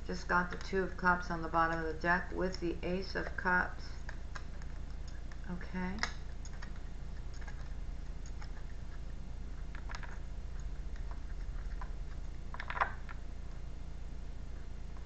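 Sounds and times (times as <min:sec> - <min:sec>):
low hum: 0:00.0 - 0:15.0
cards clicking while shuffled: 0:01.7 - 0:13.2.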